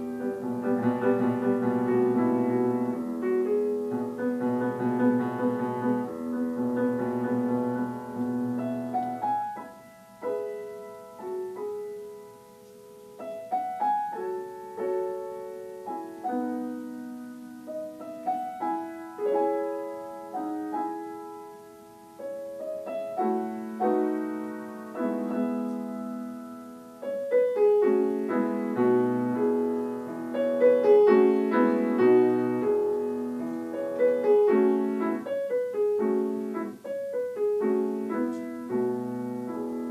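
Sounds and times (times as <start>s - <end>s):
solo piano playing slow piece: 0.0s - 39.9s.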